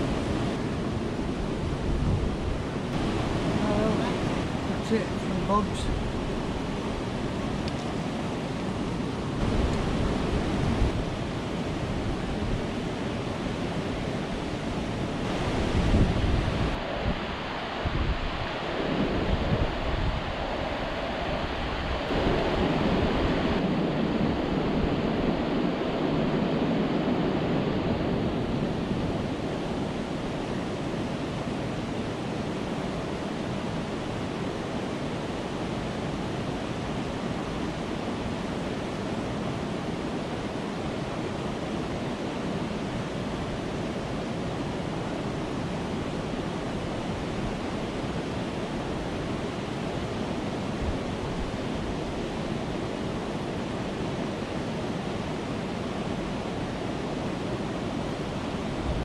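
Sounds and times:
water rushing over weir: 0:00.0 - 0:59.0
wind buffeting microphone: 0:00.0 - 0:59.0.

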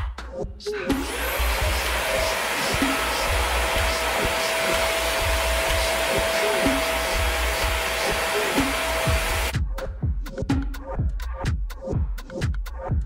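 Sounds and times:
vacuum cleaner running: 0:00.9 - 0:09.5.

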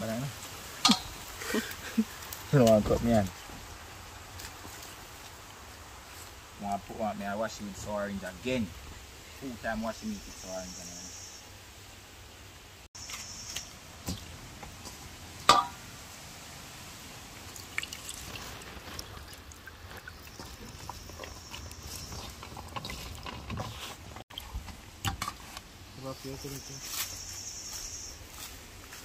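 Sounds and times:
liquid pouring and dripping: 0:17.3 - 0:21.0.

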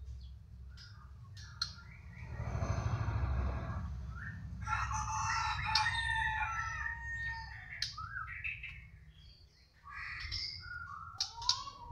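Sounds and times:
bird singing whistled phrases: 0:07.8 - 0:08.8, 0:10.0 - 0:11.9.

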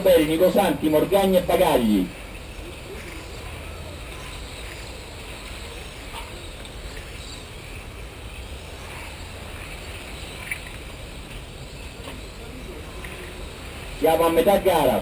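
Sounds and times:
faint ticks and whirs: 0:02.1 - 0:14.0.

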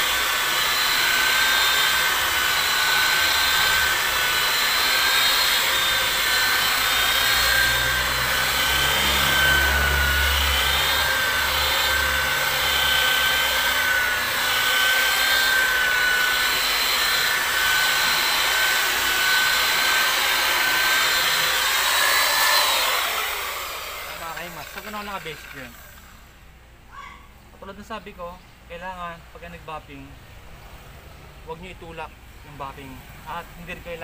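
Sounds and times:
electric polisher motor whine: 0:00.0 - 0:26.3.

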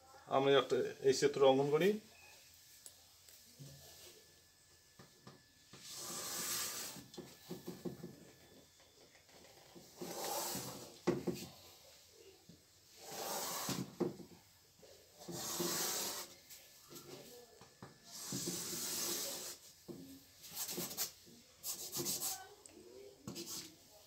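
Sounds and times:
chalk scraping on a blackboard: 0:05.8 - 0:07.2, 0:09.9 - 0:11.4, 0:12.9 - 0:14.0, 0:15.2 - 0:16.4, 0:18.1 - 0:19.7, 0:20.4 - 0:22.6, 0:23.3 - 0:23.8
chalk tapping on a board: 0:20.6 - 0:22.4.

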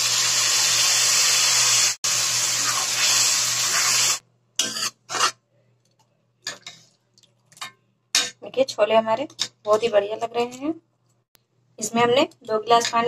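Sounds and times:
water sizzling in hot pan: 0:00.0 - 0:04.2.

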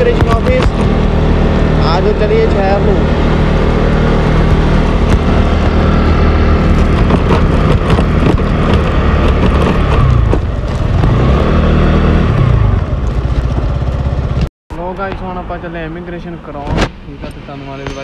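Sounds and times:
steady rushing noise: 0:00.0 - 0:13.8
motorbike engine running: 0:00.0 - 0:14.5.

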